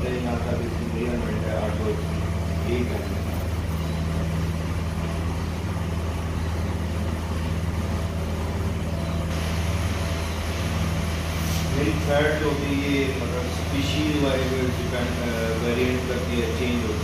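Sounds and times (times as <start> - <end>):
low machine hum: 0.0 - 17.0
steady hiss: 8.8 - 17.0.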